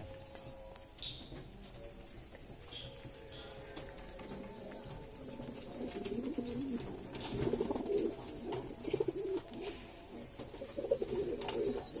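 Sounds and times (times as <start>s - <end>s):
pigeons cooing: 2.7s - 12.0s.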